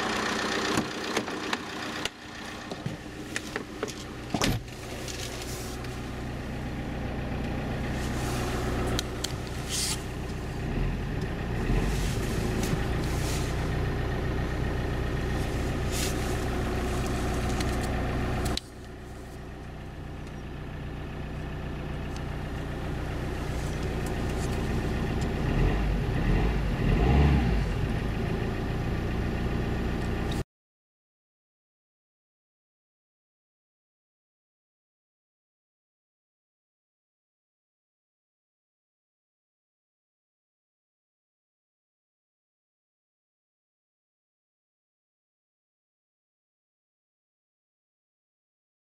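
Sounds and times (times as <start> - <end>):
diesel engine idling: 0.0 - 30.4.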